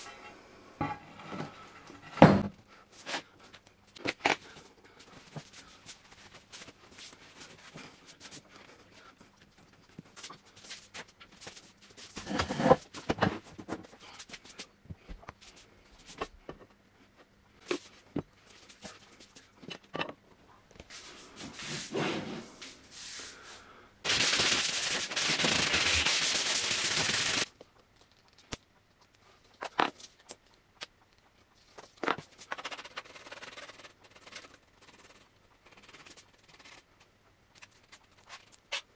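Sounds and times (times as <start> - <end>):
steady hiss: 20.8 - 27.5.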